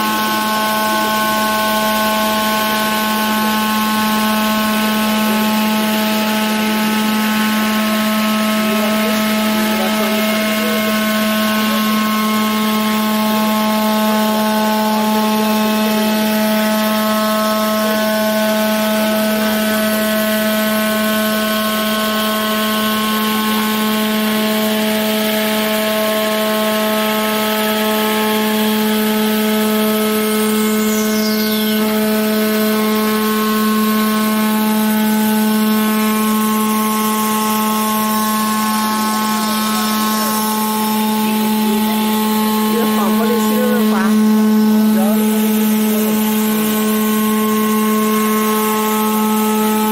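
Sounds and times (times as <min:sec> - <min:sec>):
milling machine spindle hum: 0:00.0 - 0:49.9
cutter grinding glass: 0:27.4 - 0:49.9
falling high whistle: 0:30.4 - 0:37.7.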